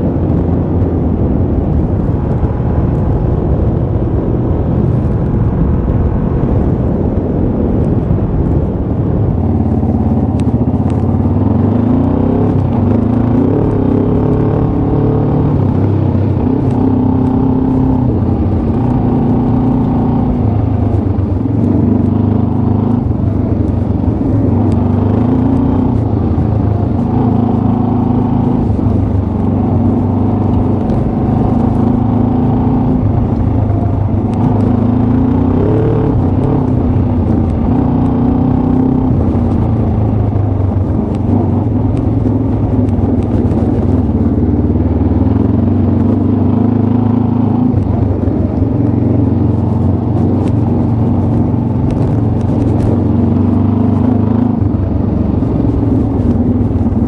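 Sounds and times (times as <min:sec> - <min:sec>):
motorcycle engine accelerating: 0:00.0 - 0:57.0.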